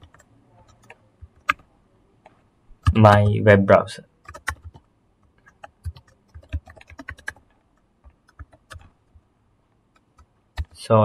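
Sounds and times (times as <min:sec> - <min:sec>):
keyboard keys clicking: 0:00.0 - 0:01.6, 0:04.2 - 0:04.8, 0:05.4 - 0:07.4, 0:08.0 - 0:08.9, 0:10.0 - 0:10.8.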